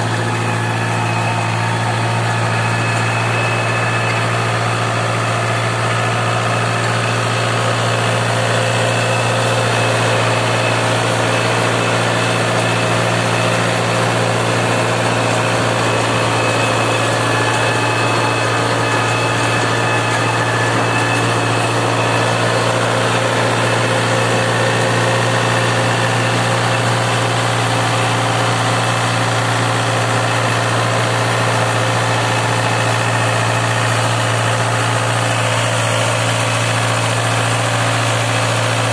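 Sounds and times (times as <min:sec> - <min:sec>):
rotary tiller churning soil: 0:00.0 - 0:38.9
tractor engine running: 0:00.0 - 0:38.9.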